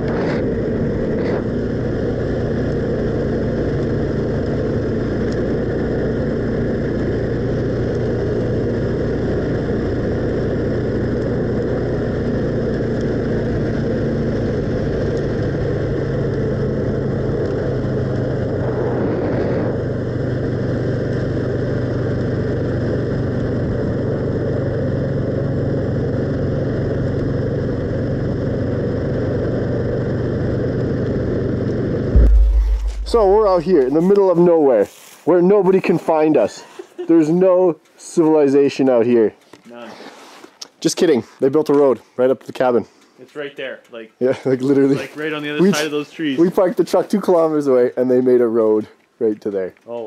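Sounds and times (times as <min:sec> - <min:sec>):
atv engine running: 0:00.0 - 0:38.0.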